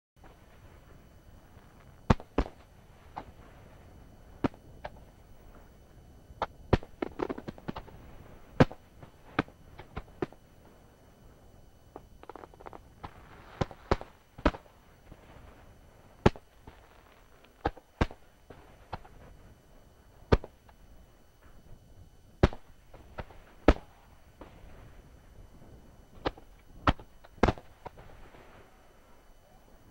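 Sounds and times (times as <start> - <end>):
firework crackling: 0.2 - 19.5, 22.3 - 29.1
firework shells bursting: 1.4 - 3.6, 6.4 - 10.4, 11.9 - 19.4, 22.4 - 24.8, 26.1 - 28.5.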